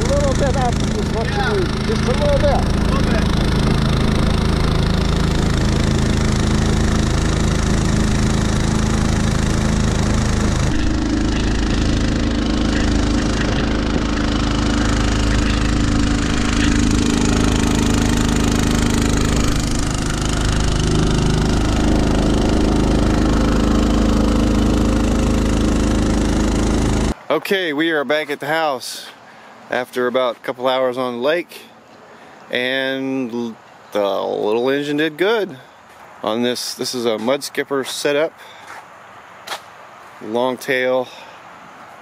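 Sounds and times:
small boat engine running: 0.0 - 27.2.

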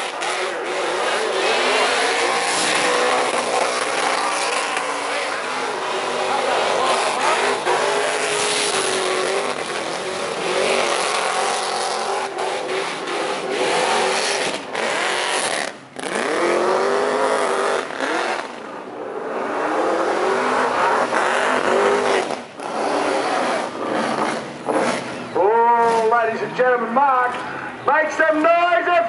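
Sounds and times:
tyres spinning and squealing: 0.0 - 18.0
engine revving hard: 0.0 - 18.6, 19.3 - 25.2.

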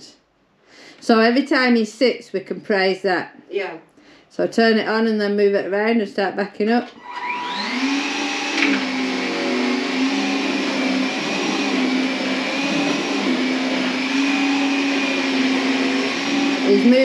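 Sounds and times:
vacuum cleaner running: 6.9 - 17.0.

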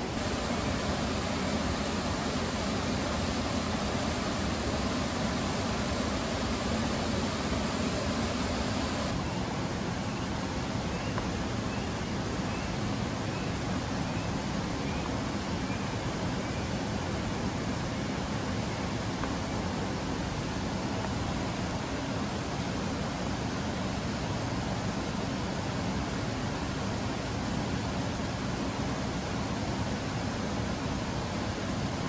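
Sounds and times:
rushing falling water: 0.0 - 32.0.

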